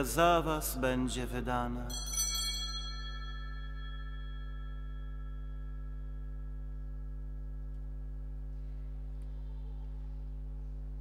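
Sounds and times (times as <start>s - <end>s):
steady low hum: 0.0s - 11.0s
bell ringing: 1.9s - 7.7s.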